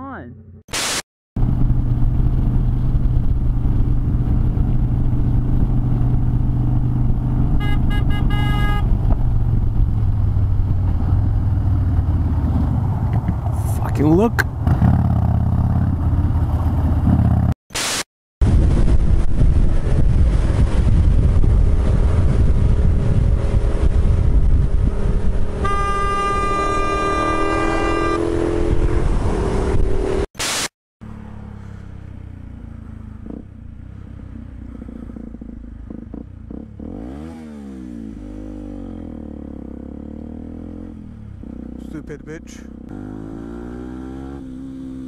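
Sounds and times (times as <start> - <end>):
wind: 0.0 - 45.0
burst of static: 0.7 - 1.1, 17.7 - 18.1, 30.4 - 30.7
motorcycle engine: 1.4 - 17.6, 18.7 - 30.3, 31.0 - 45.0
vehicle horn: 7.5 - 9.0, 25.6 - 29.0
dirt bike engine revving: 35.4 - 45.0.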